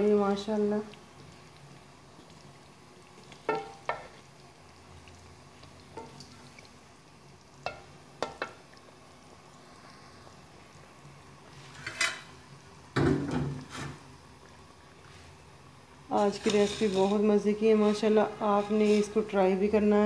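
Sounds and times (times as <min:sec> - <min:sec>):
bubbling hiss: 0:00.0 - 0:20.0
spoon knocking metal pot: 0:03.5 - 0:04.0, 0:07.6 - 0:08.6.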